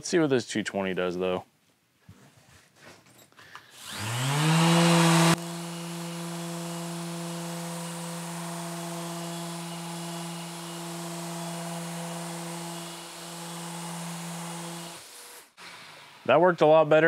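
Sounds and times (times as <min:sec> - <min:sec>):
electric sander whining: 0:03.8 - 0:15.0.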